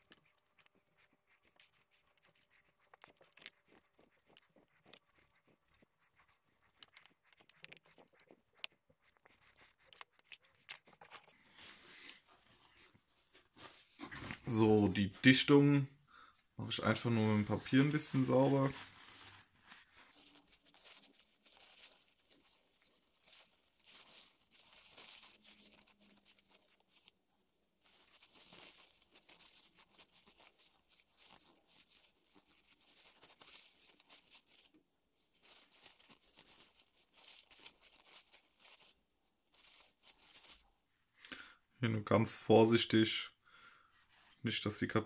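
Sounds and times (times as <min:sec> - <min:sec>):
paper towel rustling: 0:11.0 - 0:14.7, 0:16.9 - 0:40.8.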